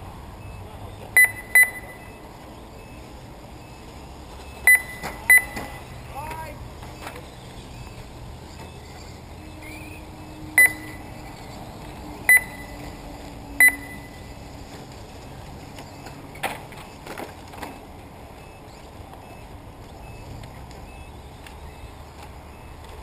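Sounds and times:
short high electronic beeps: 1.2s - 3.8s, 4.4s - 6.1s, 7.7s - 11.3s, 12.3s - 13.0s, 13.6s - 14.4s.

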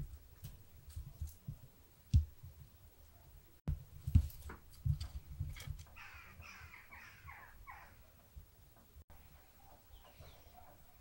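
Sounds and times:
bird calling: 6.0s - 8.1s.

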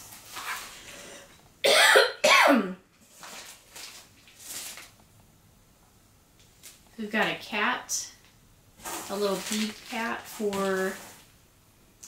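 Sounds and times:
person coughing: 1.6s - 2.8s.

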